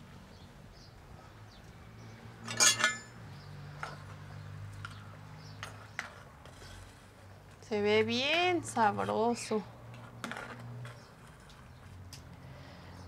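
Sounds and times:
ringing clatter: 2.4s - 3.2s
metal ladle clinking in clay pot: 2.5s - 3.2s.

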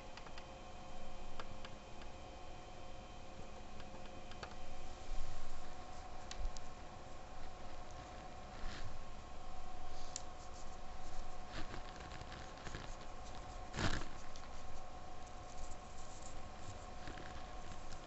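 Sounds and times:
faint steady hum: 0.0s - 18.0s
pastel scratching on paper: 9.9s - 18.0s.

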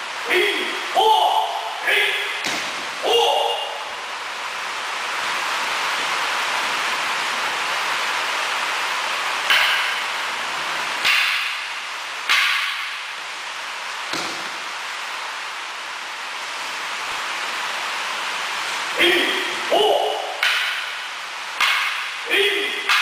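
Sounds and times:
background hiss: 0.0s - 23.0s
wooden swords clacking: 2.4s - 2.9s, 9.4s - 10.1s, 11.0s - 13.1s, 14.1s - 14.6s, 19.9s - 23.0s.

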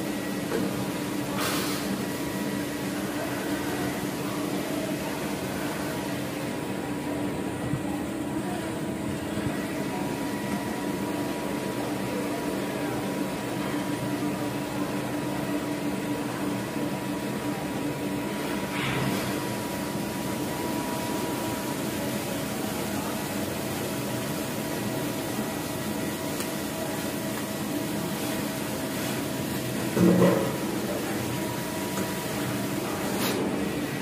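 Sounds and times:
machinery humming: 0.0s - 34.0s.

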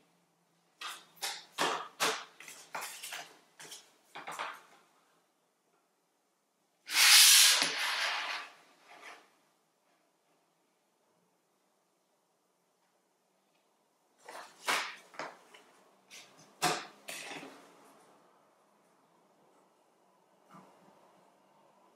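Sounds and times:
paper sliding and pressed flat: 6.9s - 9.3s.

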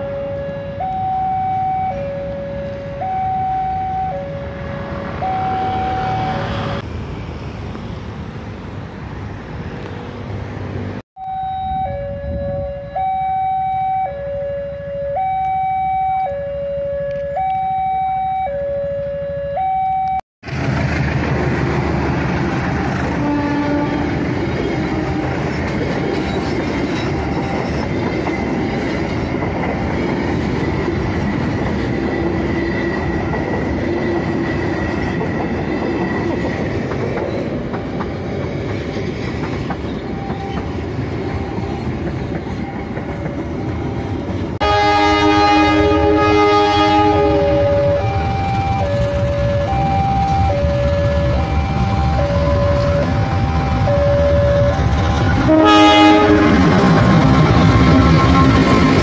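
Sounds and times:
two-tone crossing alarm: 0.0s - 6.8s, 11.2s - 20.2s, 40.0s - 59.0s
train wheels rumbling on rails: 20.4s - 59.0s.

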